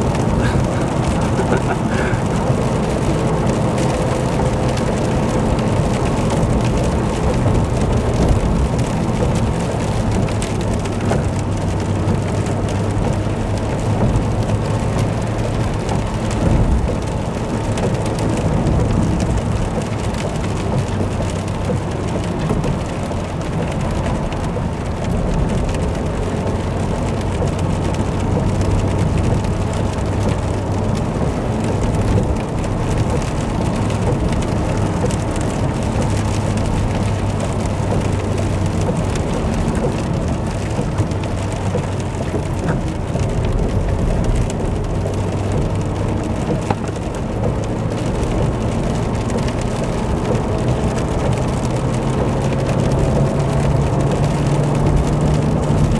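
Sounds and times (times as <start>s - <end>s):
engine drone: 0.0s - 21.8s
rain and wet tyres hissing: 0.0s - 55.9s.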